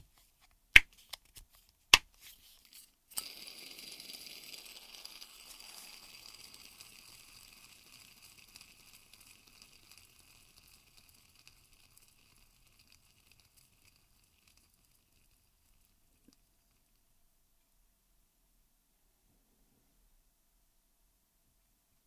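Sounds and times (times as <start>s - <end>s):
fidget spinner whirring: 2.4s - 17.0s.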